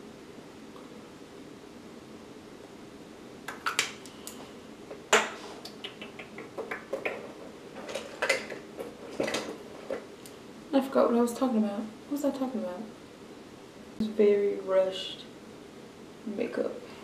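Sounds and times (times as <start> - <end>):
containers clattering on a counter: 6.6 - 10.0.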